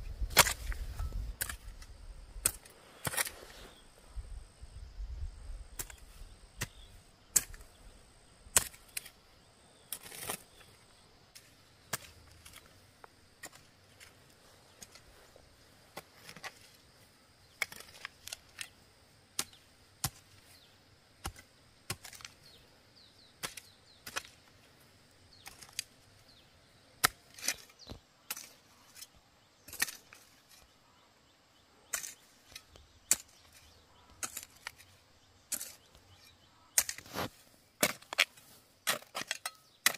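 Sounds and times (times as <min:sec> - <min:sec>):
hoe chopping into dry earth: 0:00.2 - 0:03.4, 0:08.5 - 0:09.2, 0:19.3 - 0:22.6, 0:31.8 - 0:39.9.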